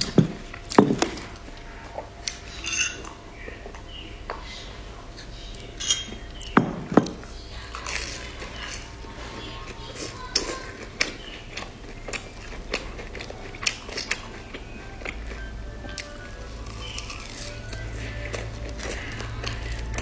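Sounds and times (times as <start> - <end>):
chewing and biting fried bread: 6.4 - 20.0.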